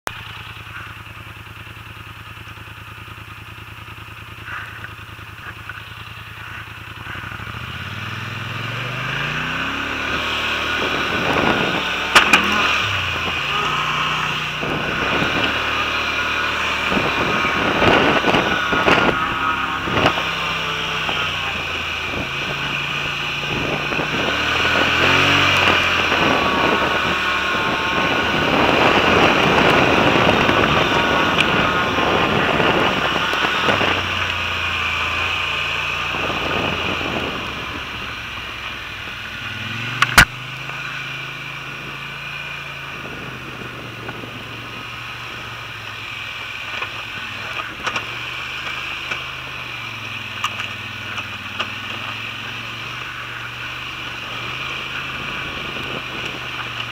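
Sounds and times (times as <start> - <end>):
atv engine running: 0.0 - 56.9
wind rush: 10.5 - 13.6, 14.3 - 34.2.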